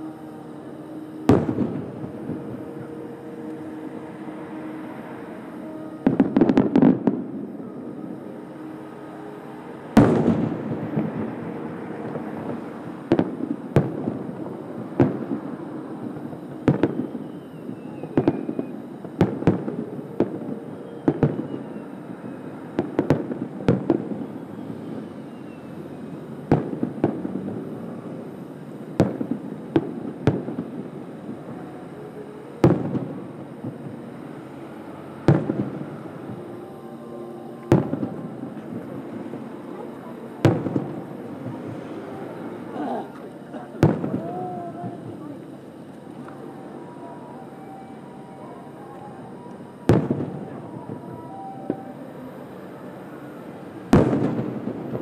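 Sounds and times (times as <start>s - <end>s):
distant firework bursts: 10.0s - 45.2s, 53.9s - 55.0s.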